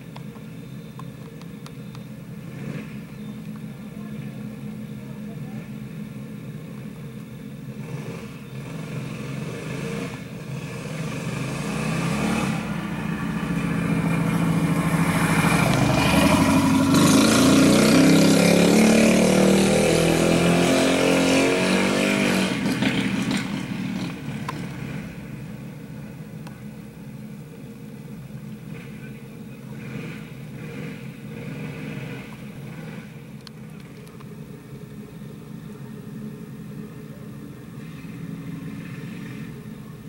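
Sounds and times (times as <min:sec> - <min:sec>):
go-kart engines racing: 0:07.7 - 0:27.4, 0:28.1 - 0:34.1, 0:34.7 - 0:40.0.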